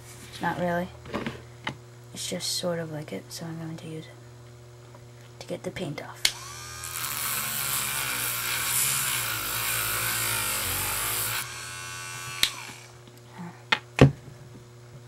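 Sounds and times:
rotary tool grinding plastic: 0:06.3 - 0:13.0.

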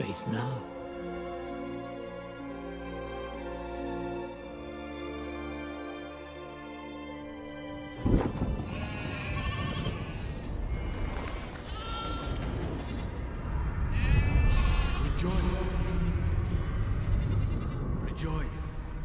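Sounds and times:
film score chord: 0:00.0 - 0:08.0
sheep bleating: 0:08.6 - 0:10.4, 0:11.6 - 0:13.2, 0:13.9 - 0:15.2
loud low rushing noise: 0:12.4 - 0:19.0.

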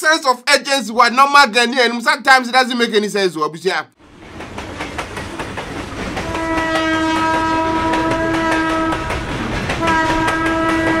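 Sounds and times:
train wheels rumbling and clicking: 0:04.0 - 0:11.0
train horn blast: 0:06.2 - 0:09.2, 0:09.8 - 0:11.0.

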